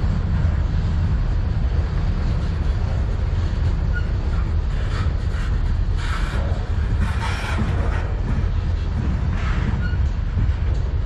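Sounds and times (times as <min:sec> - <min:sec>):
freight train rumbling past: 0:00.0 - 0:11.0.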